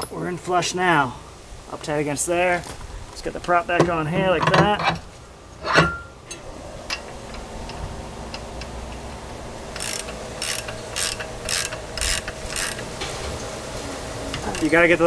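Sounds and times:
ratchet wrench clicking: 0:09.7 - 0:12.9, 0:14.4 - 0:14.8
ratchet wrench strokes: 0:09.7 - 0:12.9, 0:14.4 - 0:14.8.

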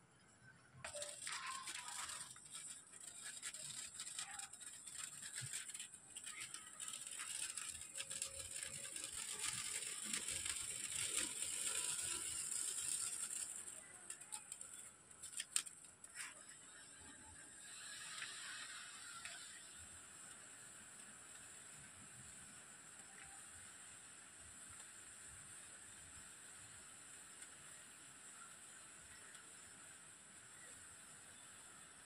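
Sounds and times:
sparkler fizzing crackle: 0:00.8 - 0:32.0
sharp cracks: 0:00.9 - 0:15.9.

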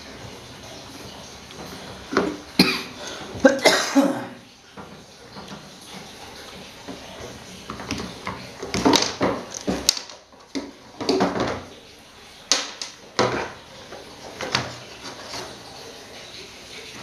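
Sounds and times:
plastic fan parts clattering: 0:06.9 - 0:11.8, 0:12.5 - 0:15.7.

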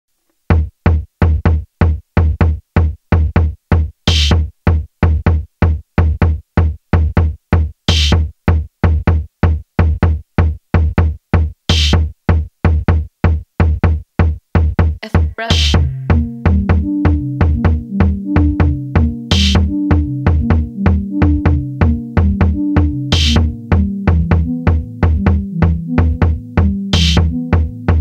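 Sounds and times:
drum machine kick beat: 0:00.5 - 0:28.0
electronic dance music: 0:15.0 - 0:27.9.

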